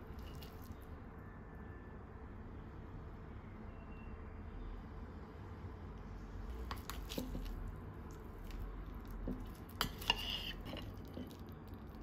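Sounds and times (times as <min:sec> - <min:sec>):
knife and fork cutting crisp food: 0:06.6 - 0:11.5
knife scraping a plate: 0:09.3 - 0:11.4.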